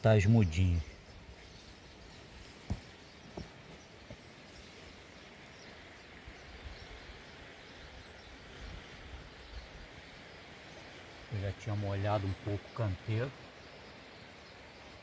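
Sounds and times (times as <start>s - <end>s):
faint outdoor hiss: 0.0s - 15.0s
soft knocks: 2.6s - 4.2s.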